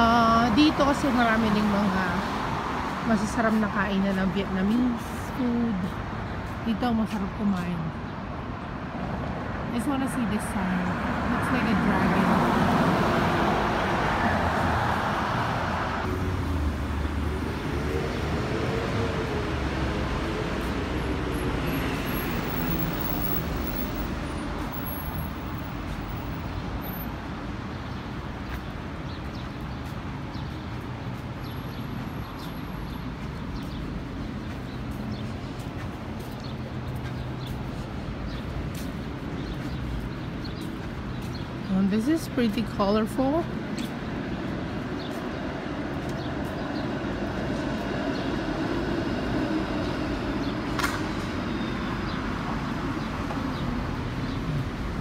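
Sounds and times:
low city traffic rumble: 0:00.0 - 0:55.0
small birds chirping: 0:27.7 - 0:48.7.

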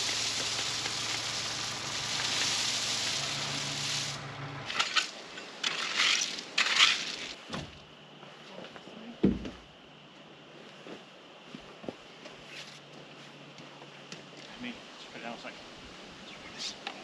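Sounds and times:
tractor engine humming: 0:00.0 - 0:05.8
crushed rock pouring: 0:00.0 - 0:07.4
stones clattering: 0:04.7 - 0:07.4.

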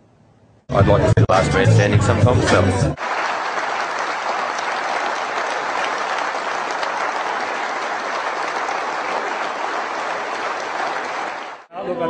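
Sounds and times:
crowd applauding: 0:03.0 - 0:11.7.

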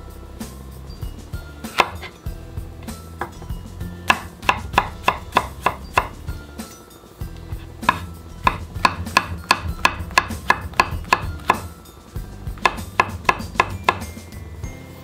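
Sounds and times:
knife slicing on cutting board: 0:01.7 - 0:02.2.

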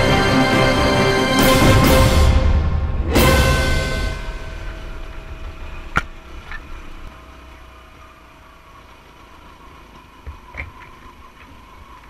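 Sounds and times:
motorbike engine rumble: 0:02.6 - 0:12.0.

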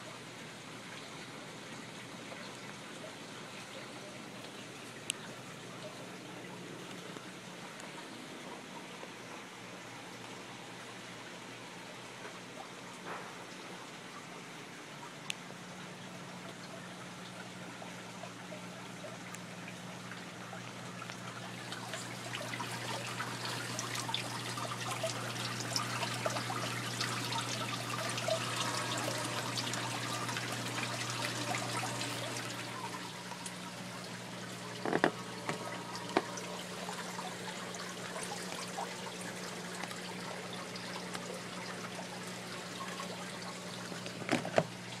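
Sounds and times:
rainwater splashing into container: 0:21.0 - 0:45.0.

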